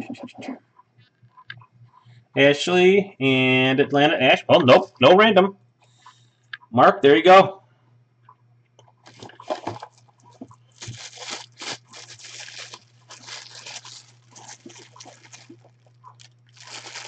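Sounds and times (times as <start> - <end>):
steady low hum: 0.0 - 17.0
plastic bag crinkling: 9.0 - 17.0.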